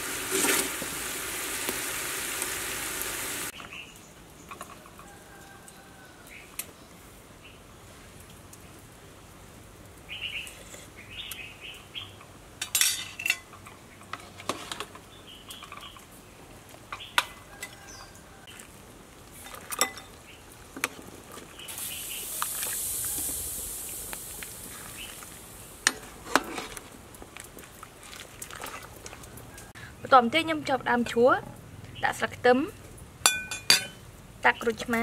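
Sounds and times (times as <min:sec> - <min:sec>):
spoon clinking on ceramic bowl: 0:33.3 - 0:34.0.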